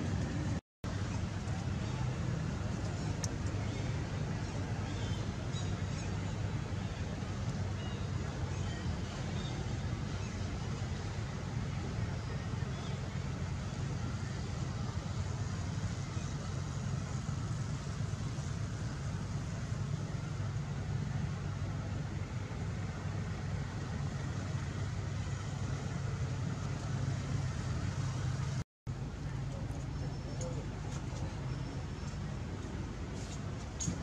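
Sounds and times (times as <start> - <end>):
low rumbling background noise: 0.0 - 34.0.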